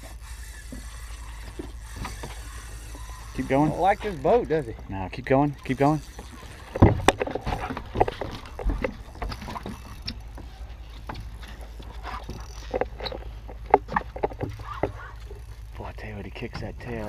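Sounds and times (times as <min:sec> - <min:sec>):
steady low rumble: 0:01.2 - 0:17.0
knocks on boat deck and hull: 0:06.7 - 0:09.8.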